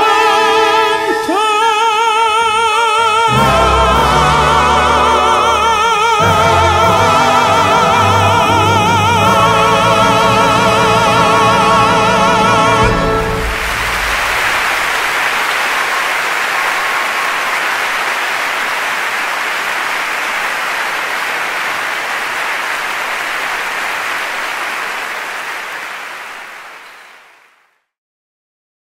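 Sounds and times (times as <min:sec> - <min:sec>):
audience applause: 0:13.0 - 0:27.7.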